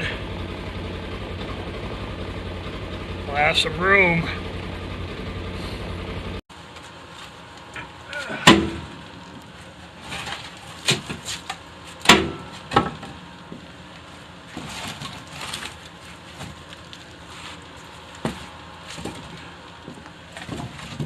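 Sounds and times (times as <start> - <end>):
firewood knocking on wood and metal: 7.7 - 9.0, 10.1 - 13.7, 18.2 - 21.0
light clattering of wood: 14.5 - 21.0.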